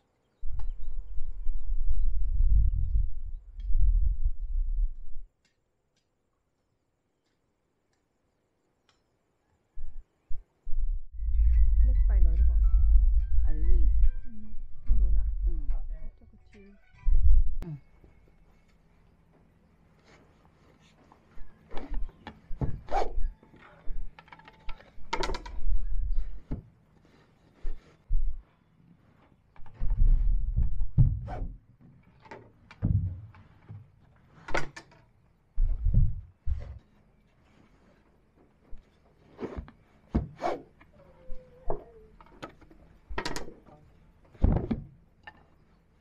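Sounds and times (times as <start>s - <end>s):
wooden knocks and clatters: 29.5s - 37.0s.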